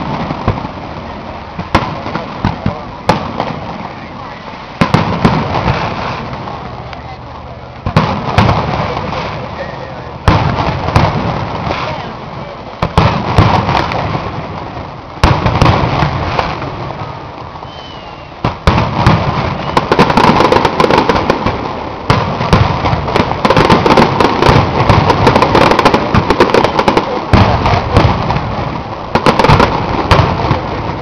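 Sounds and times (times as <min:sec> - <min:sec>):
crackle of small pops: 0:12.7 - 0:14.7
firework shells bursting: 0:12.8 - 0:31.0.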